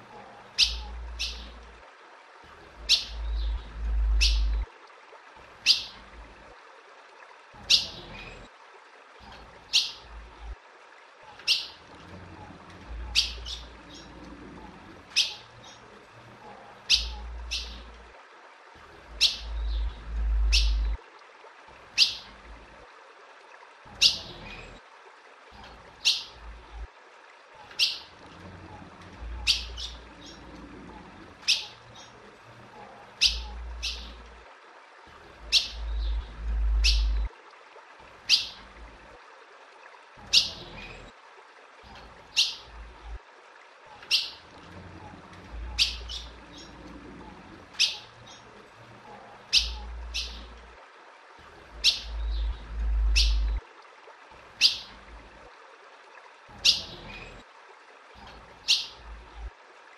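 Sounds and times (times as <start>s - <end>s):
bird chip calls: 0.6s - 1.6s, 2.8s - 4.6s, 5.6s - 6.0s, 11.4s - 11.8s, 13.1s - 14.1s, 15.2s - 15.8s, 16.9s - 17.9s, 19.2s - 21.0s, 27.7s - 28.1s, 29.4s - 30.4s, 31.4s - 32.1s, 33.2s - 34.2s, 35.5s - 37.3s, 38.3s - 38.6s, 44.0s - 44.4s, 45.7s - 46.7s, 47.8s - 48.4s, 49.5s - 50.5s, 51.8s - 53.6s, 54.6s - 54.9s, 56.6s - 57.0s, 58.2s - 59.0s
low rumble: 19.5s - 21.0s, 35.8s - 37.3s, 52.1s - 53.6s.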